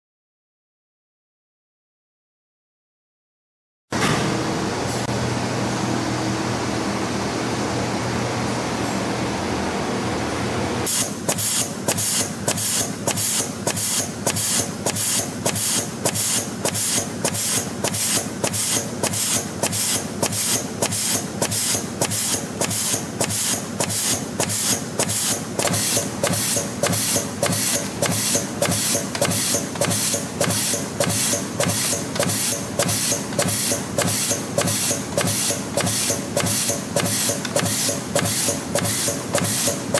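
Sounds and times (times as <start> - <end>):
sharp machine strokes: 10.9 - 39.9.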